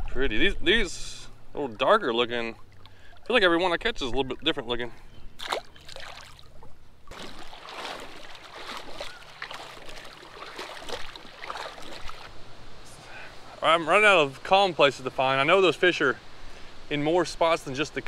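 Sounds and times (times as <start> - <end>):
river water splashing: 5.4 - 18.0.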